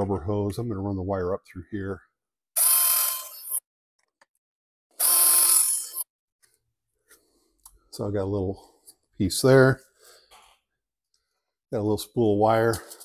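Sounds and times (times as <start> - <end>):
cordless drill drilling plastic: 2.6 - 3.6, 5.0 - 6.0.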